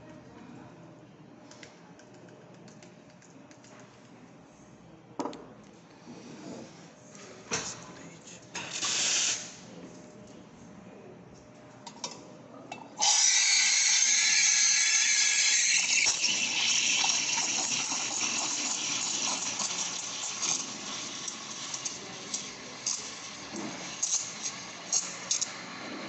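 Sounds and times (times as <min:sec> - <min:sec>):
steam wand frothing milk: 0:08.6 - 0:09.6, 0:13.0 - 0:26.0.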